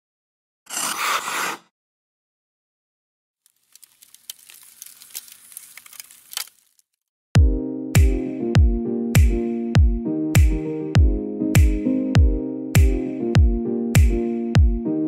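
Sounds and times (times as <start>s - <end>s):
faint ice crackling: 3.4s - 6.9s.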